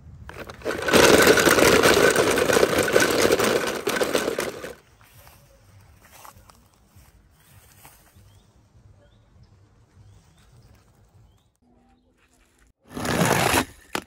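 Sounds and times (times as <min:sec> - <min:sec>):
motor running with fast rattle: 0:00.3 - 0:04.8.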